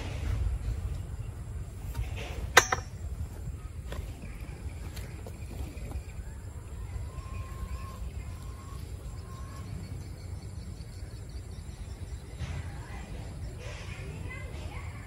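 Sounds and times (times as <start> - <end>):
faint drawn-out calls: 3.6 - 15.0.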